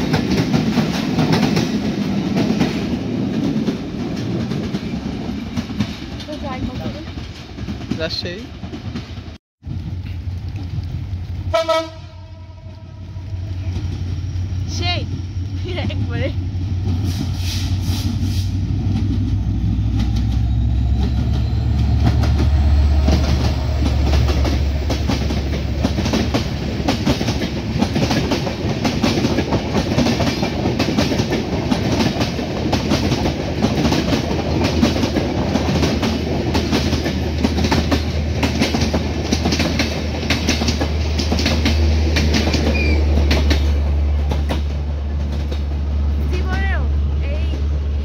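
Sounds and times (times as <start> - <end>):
train wheels clickety-clack: 0.0 - 11.4, 13.5 - 47.8
locomotive engine drone: 9.7 - 26.9, 35.4 - 48.0.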